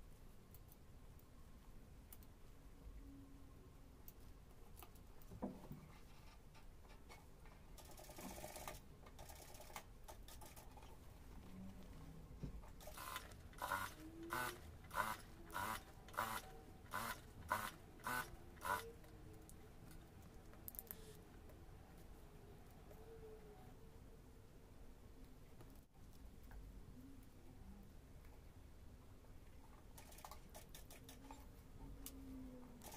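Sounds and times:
sewing machine stitching: 0:07.8 - 0:10.8, 0:12.8 - 0:18.9.

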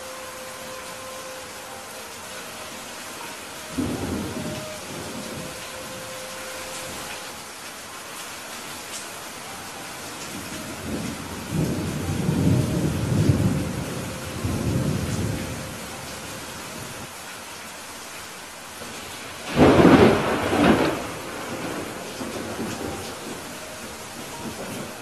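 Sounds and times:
steady rain: 0:00.0 - 0:25.0
thunder rumbling: 0:03.2 - 0:07.5, 0:10.0 - 0:17.1, 0:19.0 - 0:25.0
loud thunderclap: 0:19.4 - 0:23.4.

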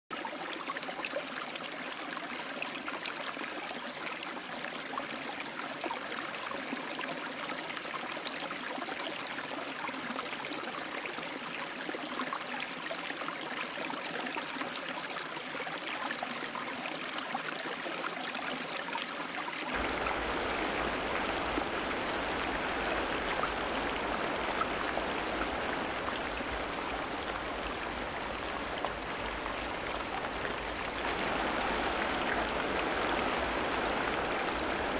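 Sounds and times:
running water rushing: 0:17.9 - 0:34.9.

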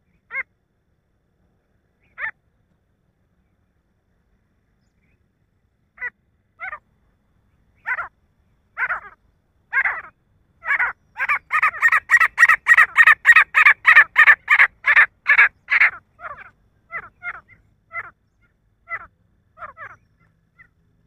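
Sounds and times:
francolin calling: 0:07.8 - 0:08.1, 0:08.8 - 0:20.8.

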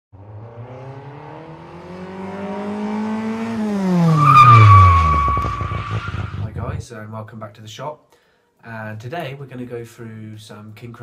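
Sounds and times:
car engine revving: 0:00.1 - 0:06.8
tyres screeching: 0:04.0 - 0:06.6.

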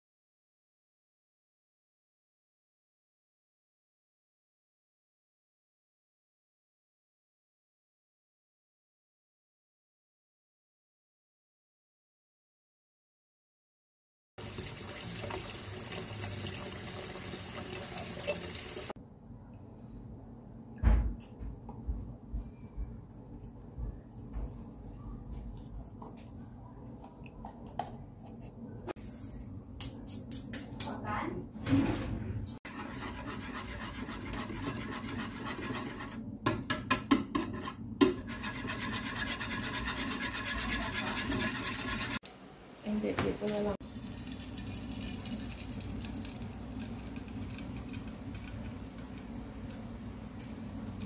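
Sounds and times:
milk pouring into a saucepan: 0:14.4 - 0:18.9
whisk scraping metal saucepan: 0:32.7 - 0:36.3, 0:37.2 - 0:42.2.

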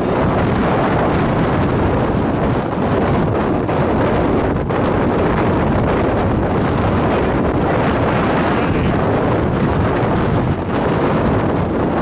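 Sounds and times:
strong wind buffeting microphone: 0:00.0 - 0:12.0.

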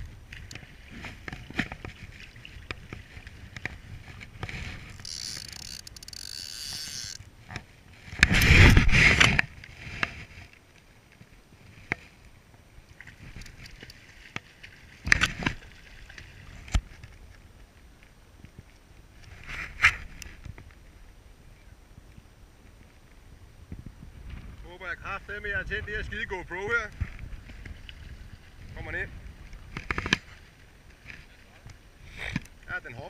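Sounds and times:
water sloshing: 0:00.0 - 0:09.4
fishing reel clicks: 0:04.9 - 0:07.2.

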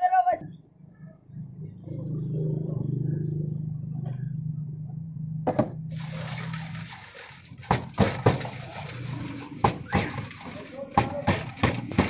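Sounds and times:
chips rustling in metal bowl: 0:06.0 - 0:11.6.

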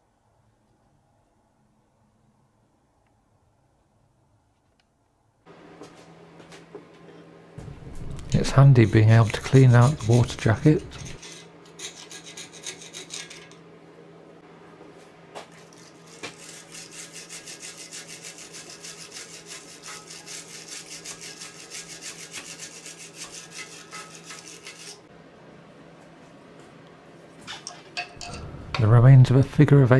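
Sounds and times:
metal tool scraping engine block: 0:08.3 - 0:13.6, 0:15.7 - 0:25.1.

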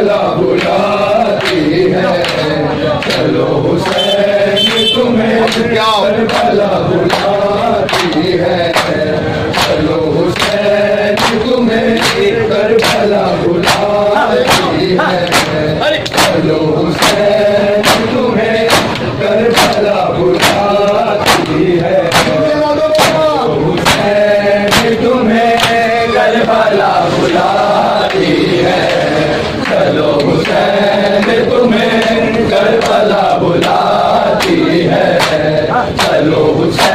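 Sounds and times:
men chanting a lament: 0:00.0 - 0:36.9
chest slaps: 0:12.8 - 0:16.4, 0:17.0 - 0:24.1, 0:24.7 - 0:25.0.

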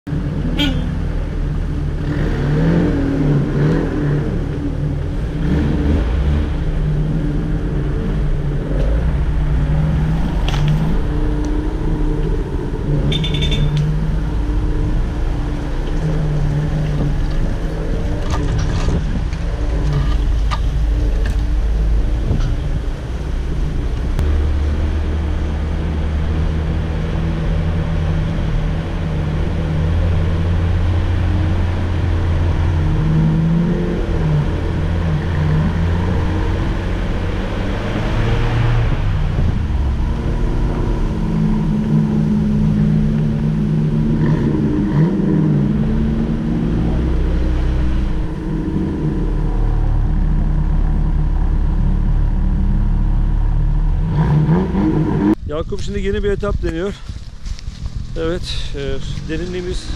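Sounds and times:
vehicle engine running: 0:03.0 - 0:59.9
vehicle knocks and rattles: 0:15.8 - 0:22.9.

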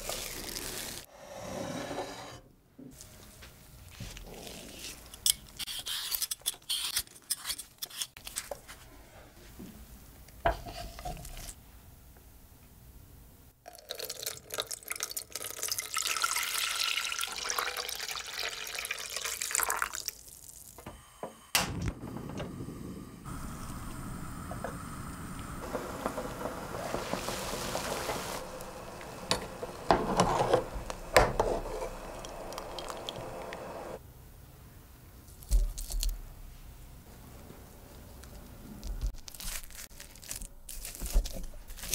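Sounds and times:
water boiling and bubbling: 0:00.0 - 0:01.1, 0:13.7 - 0:20.7, 0:23.2 - 0:34.0
kitchen clicks and scrapes: 0:04.3 - 0:08.7, 0:25.6 - 0:33.7
water pouring into saucepan: 0:13.7 - 0:20.4, 0:25.3 - 0:34.0.

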